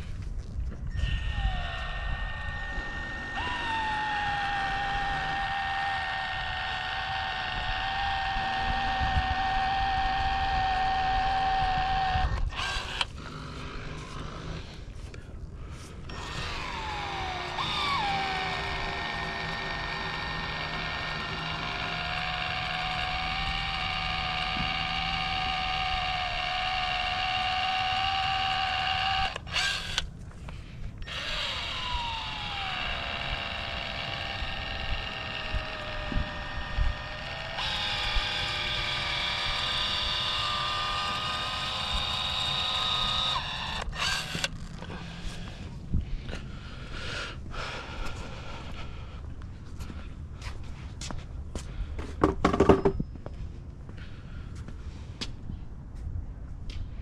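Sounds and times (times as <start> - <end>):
power tool motor whining: 0.8 - 15.2, 15.8 - 46.9.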